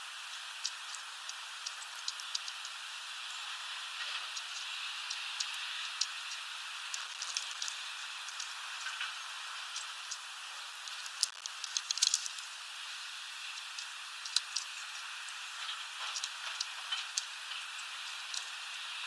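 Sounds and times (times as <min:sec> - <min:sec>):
steady hiss: 0:00.0 - 0:19.0
bird pecking at seeds: 0:00.5 - 0:02.8, 0:04.0 - 0:12.5, 0:13.4 - 0:18.5.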